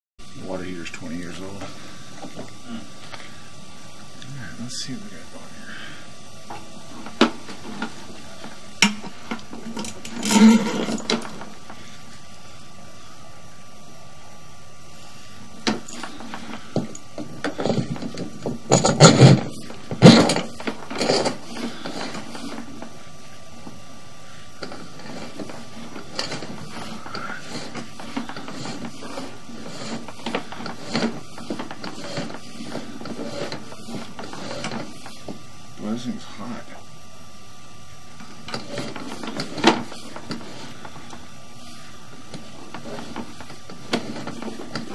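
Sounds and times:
cable clicking and clattering: 0:15.6 - 0:22.9.

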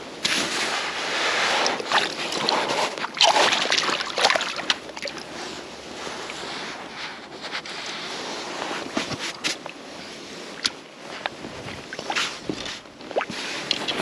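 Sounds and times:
water splashing in shallows: 0:01.2 - 0:06.6, 0:10.5 - 0:14.0.

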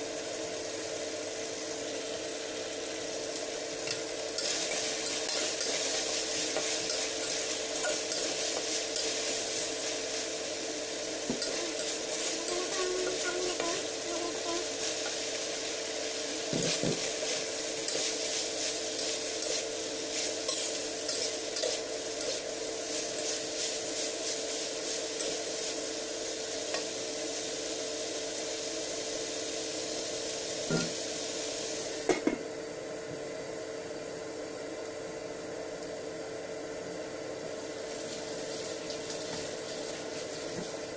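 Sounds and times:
steady hum: 0:00.0 - 0:29.4
meat sizzling in a wok: 0:00.0 - 0:32.8, 0:36.1 - 0:40.9
spatula scraping a pan: 0:16.6 - 0:24.5.

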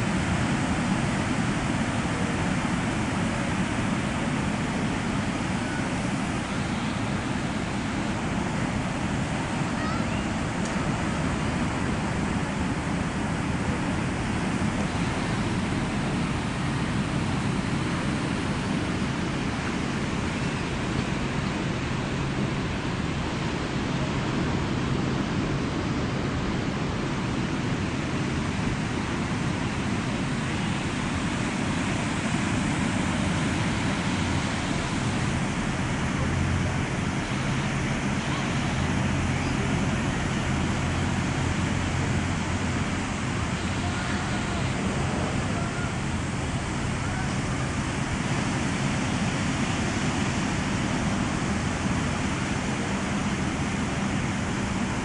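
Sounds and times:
ocean surf on beach: 0:00.0 - 0:55.0.

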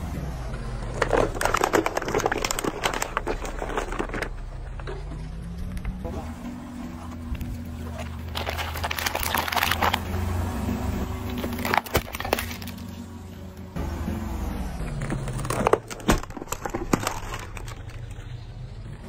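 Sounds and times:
car engine humming: 0:00.0 - 0:19.0
tyre crushing plastic cups: 0:00.8 - 0:05.9, 0:07.8 - 0:10.3, 0:11.2 - 0:13.0, 0:14.9 - 0:18.6.

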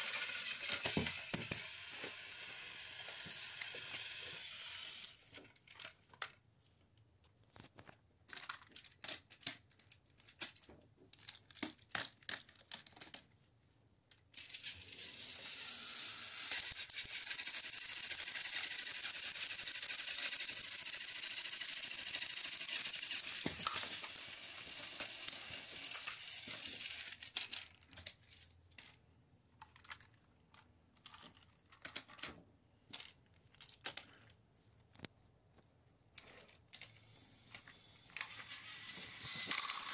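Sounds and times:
toy train motors whirring: 0:00.0 - 0:06.4, 0:14.1 - 0:29.0, 0:36.2 - 0:39.9
plastic clicks and rattles: 0:05.3 - 0:06.4, 0:07.5 - 0:14.6, 0:19.8 - 0:29.0, 0:29.6 - 0:39.9.

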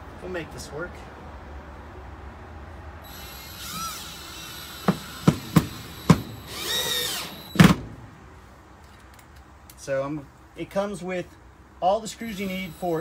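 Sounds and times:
cordless drill motor whining: 0:03.0 - 0:07.7, 0:12.2 - 0:13.0.

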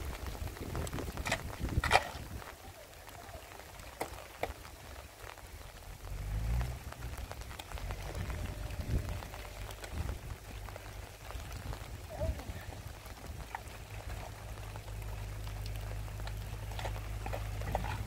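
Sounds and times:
steady rain falling: 0:00.0 - 0:18.0
low rumble: 0:05.0 - 0:18.0.

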